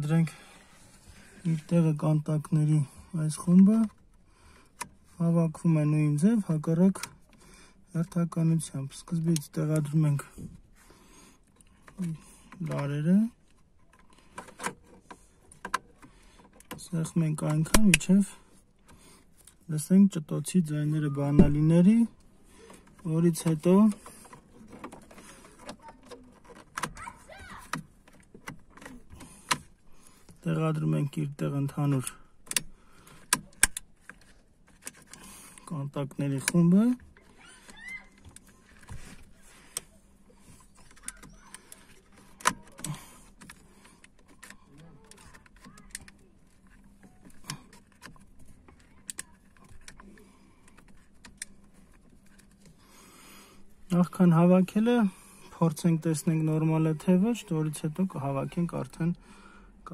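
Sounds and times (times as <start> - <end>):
plastic handling noise: 21.3 - 59.1
plastic latches clicking: 22.7 - 27.0, 31.9 - 35.7, 40.6 - 52.6.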